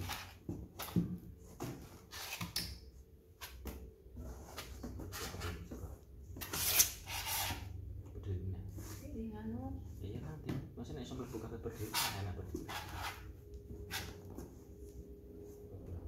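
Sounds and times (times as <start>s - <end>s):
rubbing scrape on cardboard: 0.0s - 0.4s, 1.8s - 2.6s, 6.4s - 7.7s, 11.2s - 13.3s.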